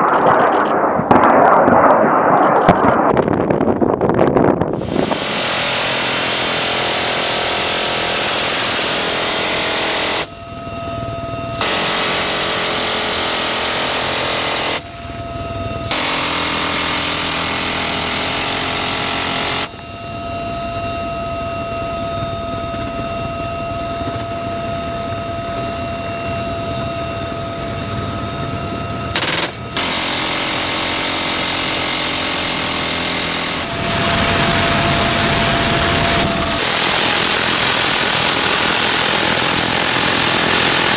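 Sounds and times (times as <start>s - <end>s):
minigun firing bursts: 0.0s - 3.7s, 4.8s - 10.3s, 11.6s - 14.9s, 15.9s - 19.8s, 29.1s - 40.9s
helicopter engine whine: 0.0s - 40.9s.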